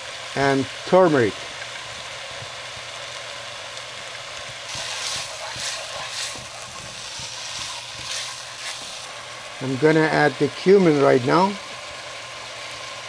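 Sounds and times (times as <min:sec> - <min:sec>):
meat sizzling in a frying pan: 0:00.0 - 0:13.0
wooden spoon stirring: 0:04.6 - 0:09.2.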